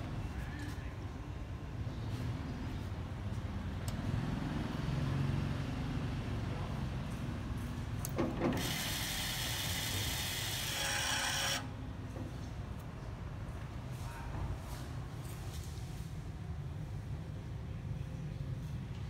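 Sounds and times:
small motor whirring: 0:08.4 - 0:11.7.

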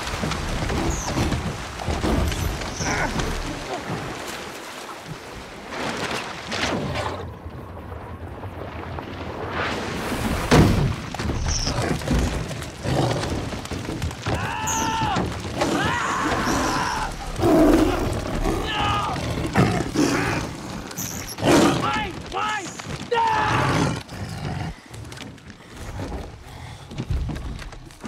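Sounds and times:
fish thudding and splashing on boat: 0:00.0 - 0:04.8, 0:10.3 - 0:19.6
tiger snarling: 0:17.2 - 0:21.8
young man yelling: 0:21.8 - 0:23.6.

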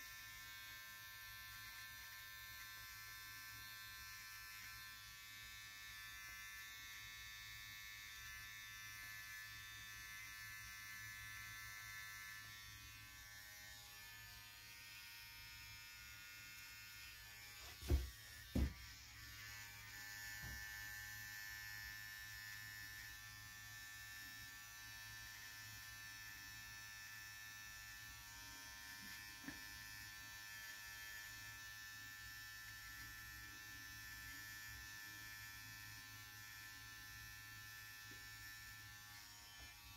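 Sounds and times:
hair trimmer buzzing: 0:00.0 - 0:39.9
dull thumps: 0:17.7 - 0:18.8.

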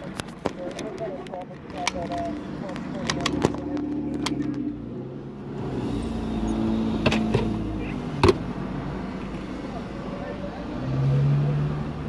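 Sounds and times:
sharp clicks and knocks: 0:00.0 - 0:04.7.

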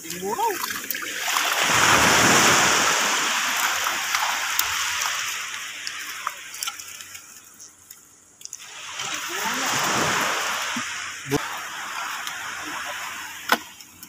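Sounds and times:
water dripping: 0:00.0 - 0:02.0, 0:02.8 - 0:09.6
seawater splashing off a fishing net: 0:00.4 - 0:07.0, 0:08.6 - 0:13.6.

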